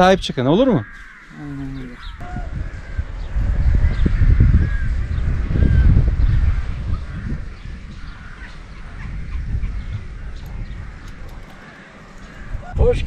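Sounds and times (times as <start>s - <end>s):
birds chirping: 0.0s - 13.0s
wind rumbling on microphone: 0.0s - 13.0s.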